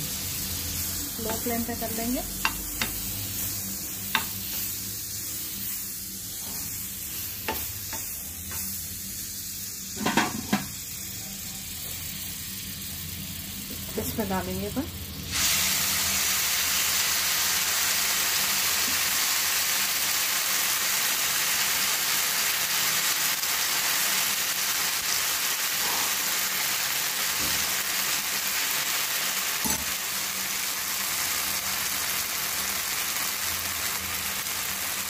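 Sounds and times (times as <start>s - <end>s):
batter sizzling in a pan: 0.0s - 35.0s.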